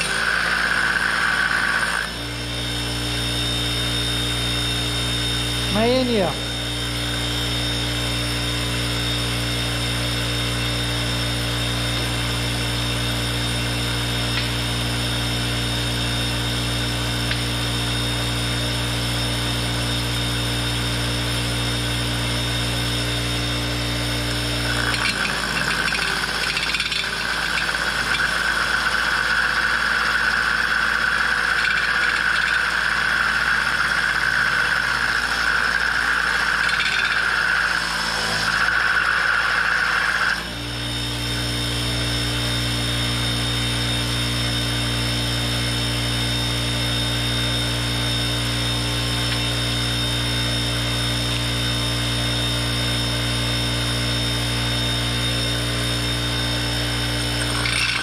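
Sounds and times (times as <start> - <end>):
bench grinder humming: 0.0 - 58.0
grinding whine and rasp: 0.0 - 58.0.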